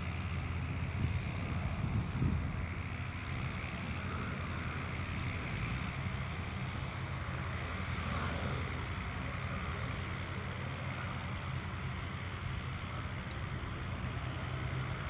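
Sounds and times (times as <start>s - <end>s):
distant propeller plane droning: 0.0s - 15.0s
wind rumbling on microphone: 0.6s - 11.4s.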